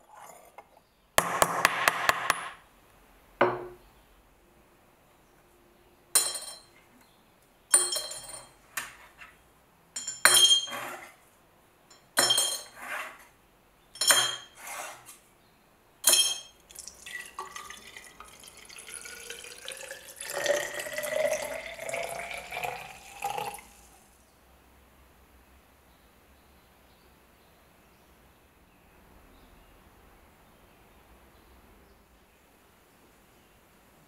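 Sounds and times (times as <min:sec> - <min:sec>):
metal parts clinking into glass jar: 0:07.7 - 0:08.6, 0:10.0 - 0:10.8, 0:16.0 - 0:16.6
liquid pouring into jar: 0:16.7 - 0:24.1.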